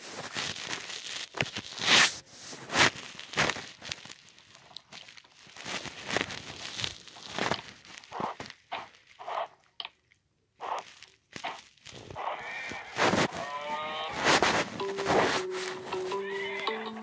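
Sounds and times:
rustling and crinkling: 0.0 - 17.0.

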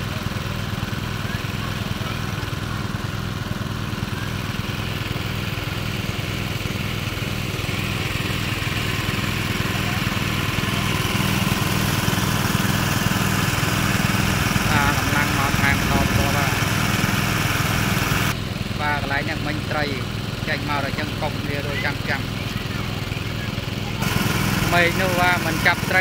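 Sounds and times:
small engine driving water pump: 0.0 - 26.0.

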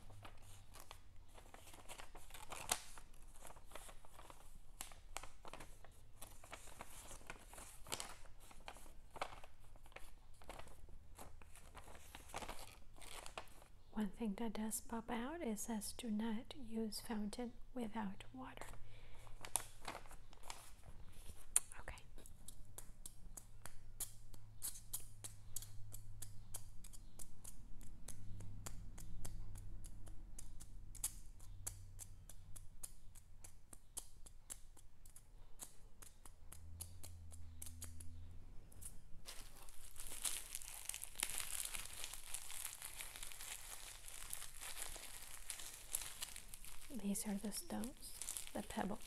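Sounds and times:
plastic wrapping crinkling: 0.0 - 13.8, 19.2 - 21.7, 38.8 - 49.0.

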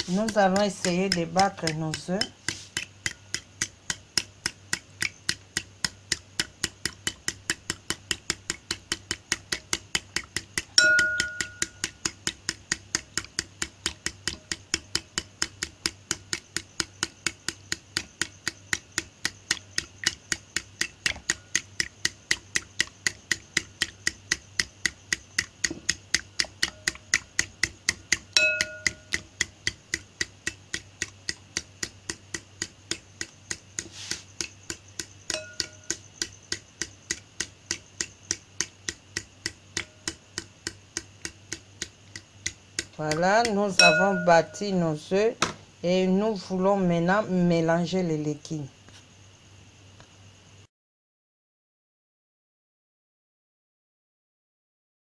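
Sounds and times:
whisk clicking against bowl: 0.0 - 44.9
bowl ringing: 10.8 - 11.8, 28.4 - 29.1, 35.3 - 35.8, 43.8 - 44.7.

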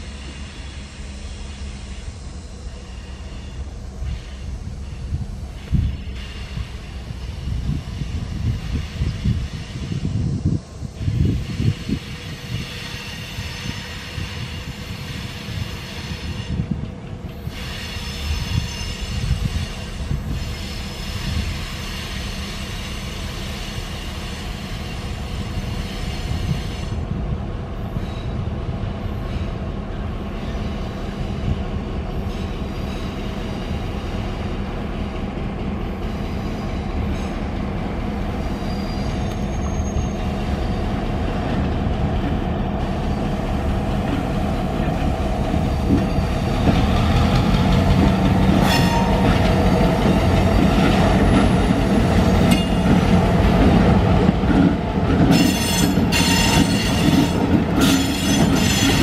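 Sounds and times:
steel wheels squealing on rail: 0.0 - 27.2, 27.8 - 35.2, 35.8 - 41.6, 42.3 - 59.0
diesel locomotive engine rumble: 0.0 - 59.0.

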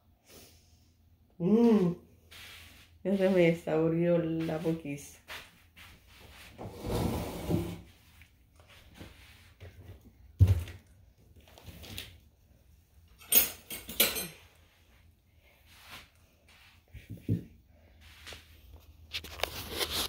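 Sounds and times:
dishes clattering: 13.2 - 14.5.

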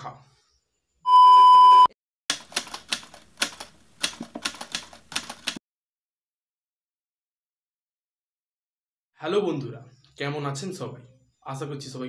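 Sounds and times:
electronic beep: 1.1 - 2.0
typewriter keystroke clacks: 2.3 - 5.6.

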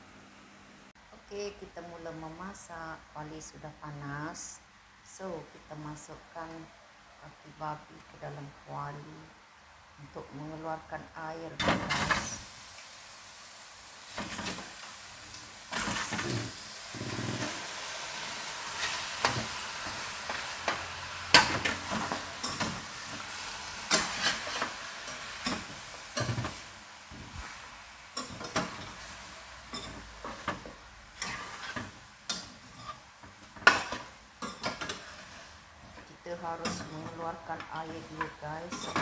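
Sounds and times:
meat sizzling in a pot: 11.6 - 39.0.

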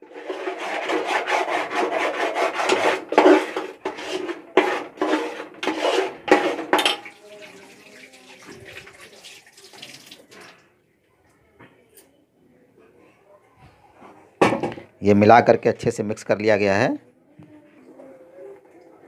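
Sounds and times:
ladle scraping metal pot: 0.0 - 8.8.

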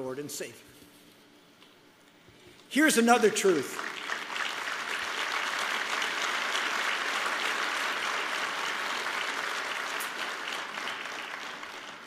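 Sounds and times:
audience applauding: 3.4 - 12.0.

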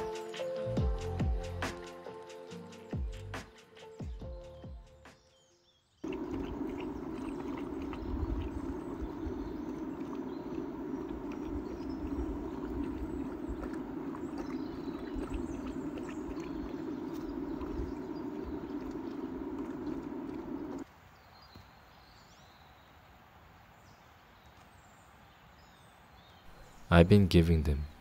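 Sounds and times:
dogs chewing and crunching: 6.0 - 20.8
steady low rush: 6.1 - 20.8.

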